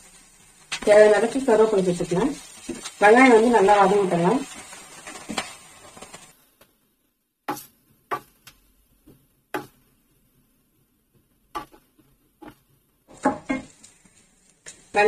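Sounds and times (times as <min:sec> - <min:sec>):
onions sizzling in oil: 0:00.0 - 0:06.5.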